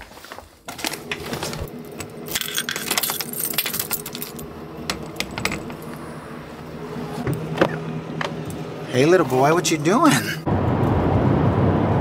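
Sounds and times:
keys jangling: 2.0 - 5.8.

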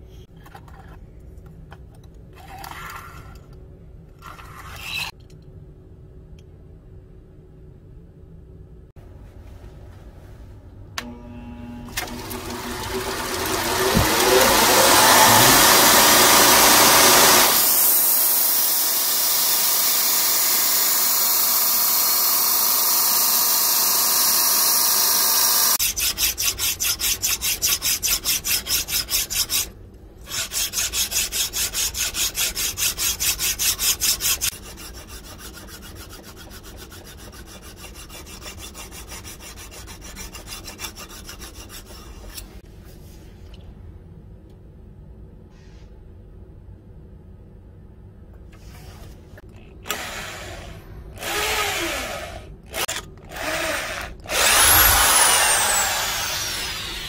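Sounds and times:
belt grinder grinding steel: 11.9 - 29.7, 51.2 - 57.0
hand filing strokes: 12.5 - 17.7, 25.8 - 42.6, 54.4 - 57.0.

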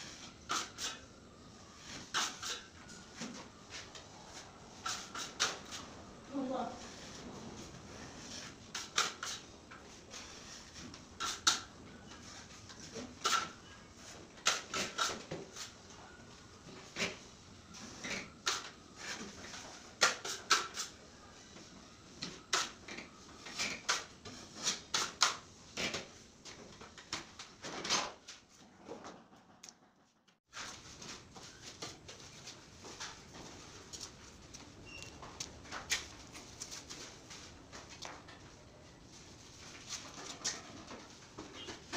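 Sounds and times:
putty knife scraping: 0.5 - 1.0, 1.8 - 2.8, 13.2 - 13.6.

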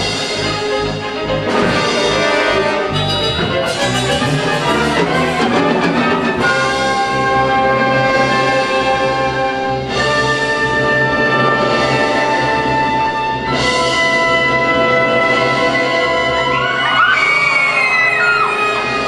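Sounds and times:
orchestra with brass playing: 0.0 - 16.7.

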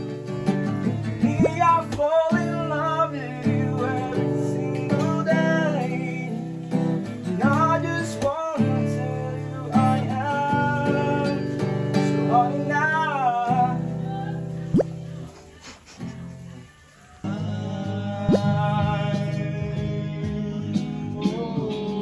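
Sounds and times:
acoustic guitar strumming: 0.0 - 15.4
man singing: 1.1 - 14.5, 17.1 - 22.0.

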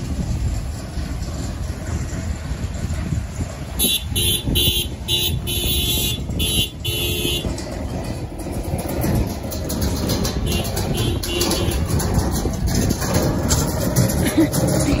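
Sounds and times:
vehicle rumbling: 0.0 - 15.0.

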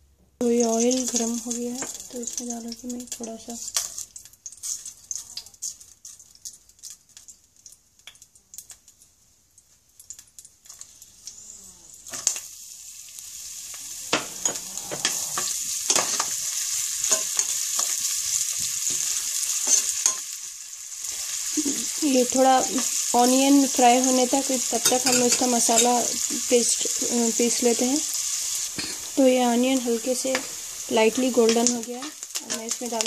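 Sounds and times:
onion sizzling in hot oil: 0.4 - 33.0
metal spoon scraping pan: 14.1 - 16.4, 24.8 - 26.0.

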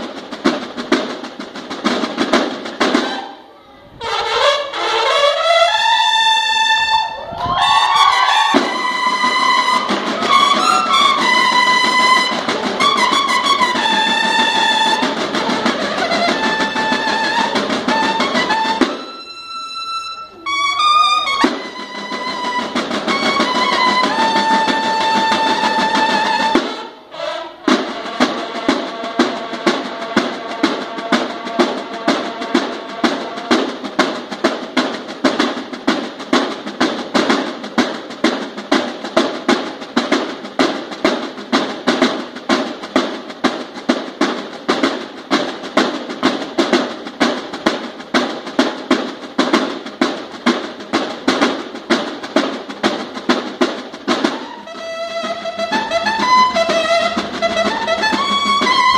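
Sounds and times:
snare and bass drums marching beat: 0.0 - 3.4, 4.2 - 19.3, 20.7 - 58.9
bugles playing: 2.1 - 34.3, 54.0 - 58.9.

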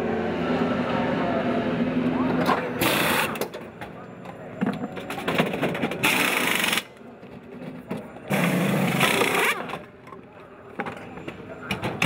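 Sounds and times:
pneumatic impact wheel guns rattling: 5.4 - 6.9, 8.3 - 9.8.

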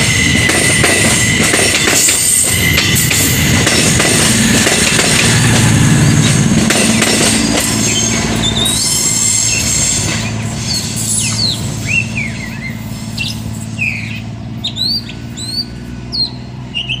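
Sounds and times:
train wheels rolling: 0.0 - 16.7
train engine drone: 0.0 - 17.0
small birds chirping: 10.7 - 17.0.

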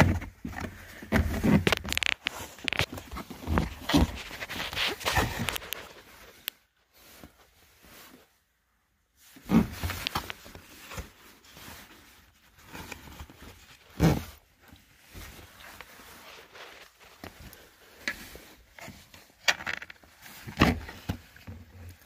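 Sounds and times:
plastic rubbing and clicks: 0.0 - 6.6, 18.0 - 22.0.

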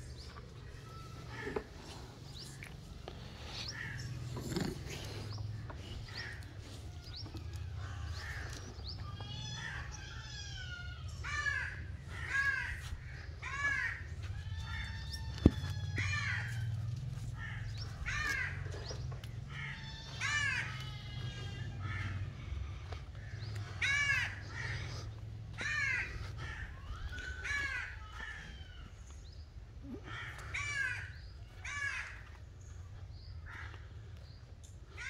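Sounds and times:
crows cawing: 0.0 - 29.4, 30.0 - 35.0.

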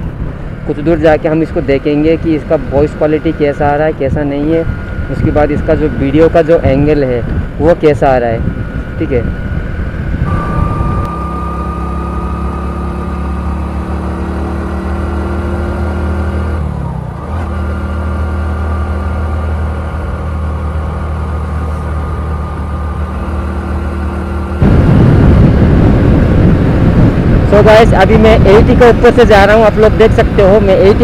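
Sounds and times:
wind rushing on microphone: 0.0 - 11.2, 24.5 - 31.0
motorcycle engine cruising: 0.0 - 31.0.

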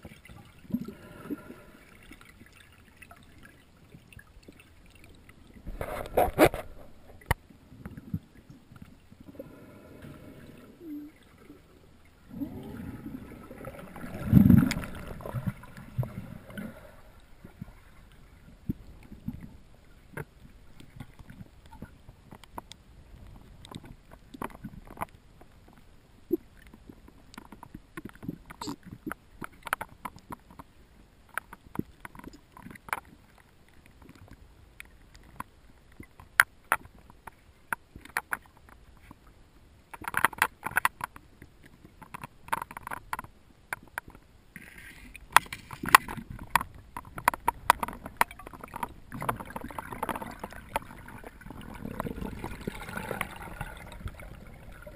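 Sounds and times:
underwater clicks and knocks on rock: 45.3 - 50.9.

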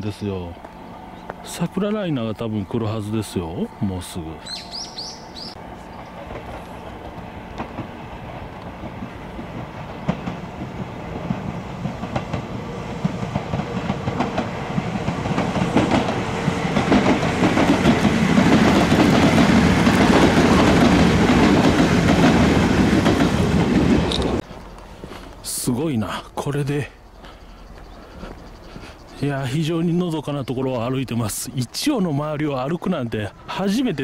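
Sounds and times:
electric train passing: 0.0 - 34.0
wheels clacking over rail joints: 4.5 - 25.5.

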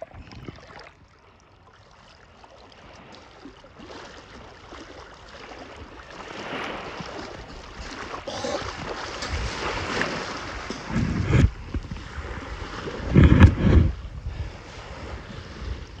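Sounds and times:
wind buffeting microphone: 5.8 - 16.0.

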